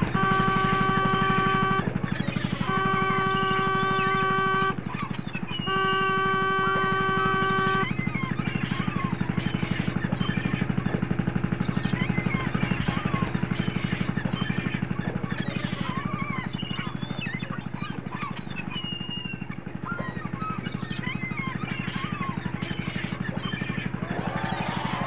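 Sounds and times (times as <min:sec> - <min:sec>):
horn blowing steady note: 0:00.0 - 0:02.0, 0:02.6 - 0:04.8, 0:05.6 - 0:07.9
birds calling: 0:00.0 - 0:25.0.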